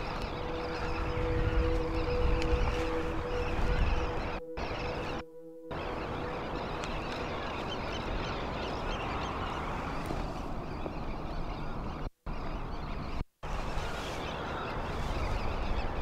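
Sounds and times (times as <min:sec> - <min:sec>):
steady low rumble: 0:00.0 - 0:11.6
waterbirds calling: 0:00.0 - 0:16.0.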